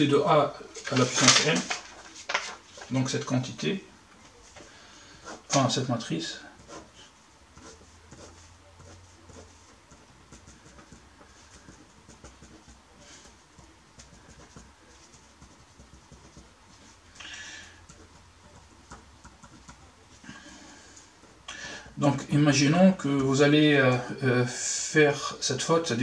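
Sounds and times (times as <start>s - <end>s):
pencil scratching on paper: 4.5s - 17.1s, 17.8s - 21.0s.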